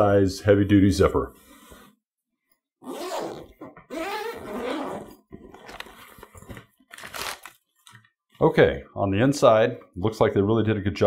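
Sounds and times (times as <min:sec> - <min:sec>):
zipper unzipping: 0:02.8 - 0:05.7.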